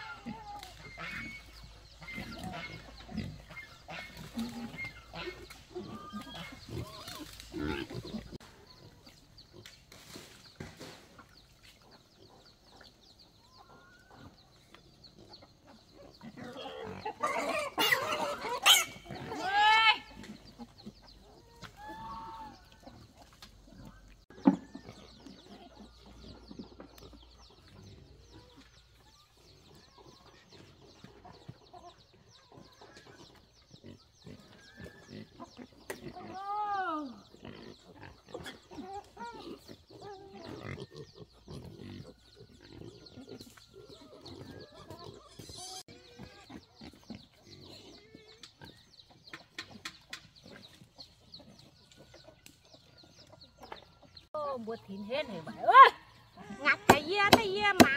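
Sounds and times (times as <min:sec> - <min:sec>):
pigs squealing: 0:00.0 - 0:08.4, 0:16.0 - 0:22.6, 0:32.8 - 0:48.2.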